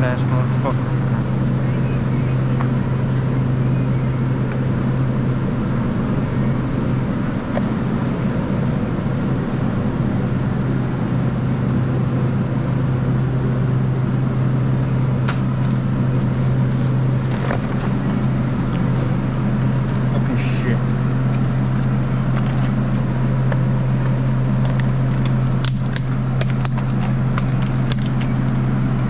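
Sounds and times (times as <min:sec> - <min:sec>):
refrigeration fans humming: 0:00.0 - 0:29.0.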